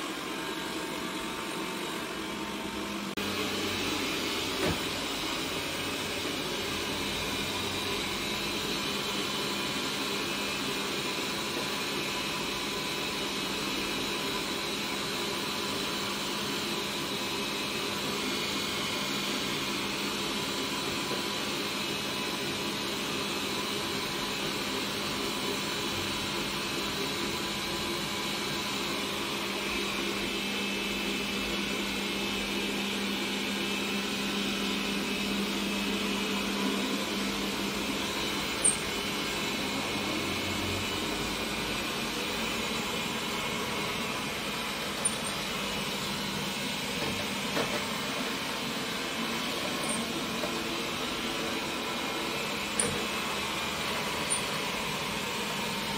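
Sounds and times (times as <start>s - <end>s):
robot vacuum running: 0.0s - 55.9s.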